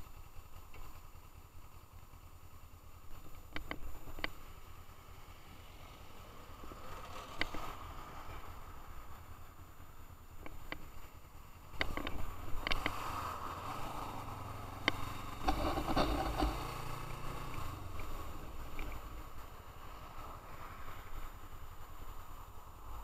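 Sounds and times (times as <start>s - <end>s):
wind and road noise: 0.0s - 23.0s
sharp clicks and knocks: 3.2s - 4.4s, 11.7s - 13.0s, 14.8s - 19.0s
motorcycle engine running: 9.1s - 20.3s.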